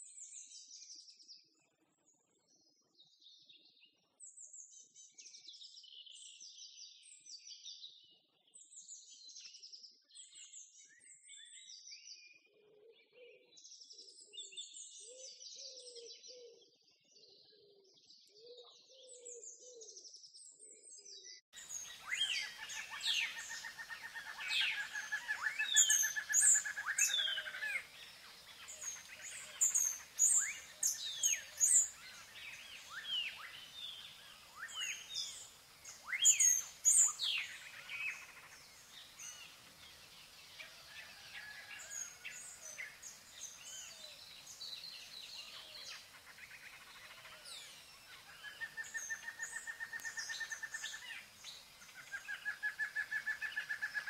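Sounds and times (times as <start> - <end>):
birds chirping: 21.6 - 54.0.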